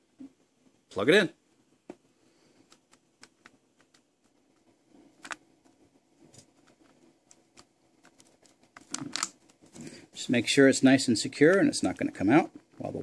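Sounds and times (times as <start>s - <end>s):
small clicks and scrapes: 2.4s - 10.0s.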